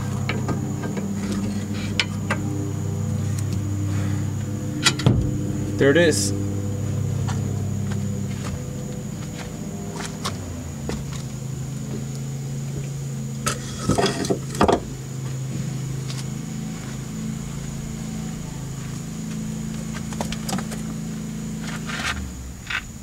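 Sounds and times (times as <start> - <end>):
steady low hum: 0.0 - 23.0
metal tools clanking and rattling: 13.4 - 14.9.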